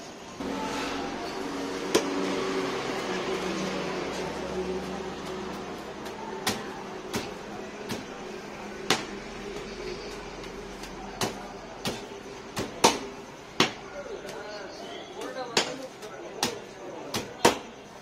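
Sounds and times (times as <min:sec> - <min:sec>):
hands slapping flatbread on steel: 0:04.8 - 0:14.5, 0:15.2 - 0:17.8.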